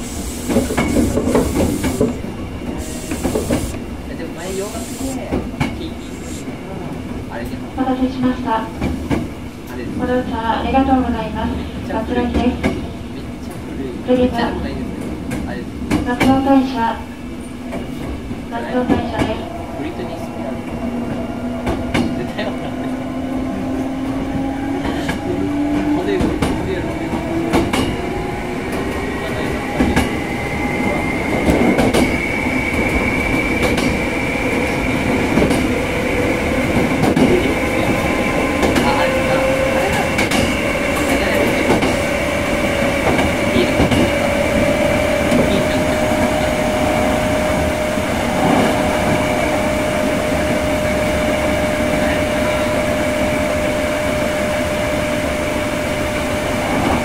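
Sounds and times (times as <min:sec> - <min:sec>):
train motor whine: 0:00.0 - 0:03.8
electric train running rumble: 0:00.0 - 0:57.0.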